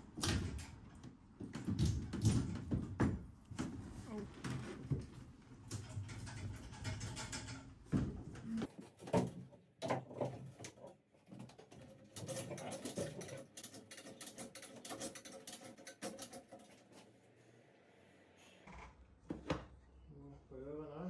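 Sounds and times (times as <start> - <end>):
chain hoist clicking and rattling: 11.7 - 17.0.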